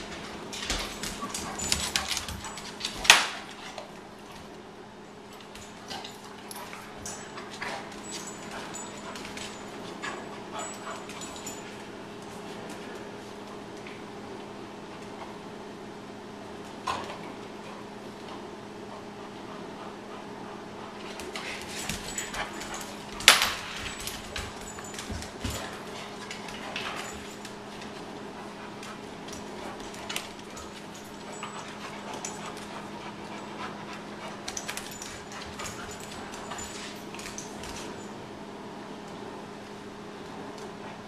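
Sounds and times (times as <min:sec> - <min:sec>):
dog claws clicking and scuffing: 0:00.0 - 0:04.5, 0:21.0 - 0:38.1
steady low hum: 0:00.0 - 0:41.0.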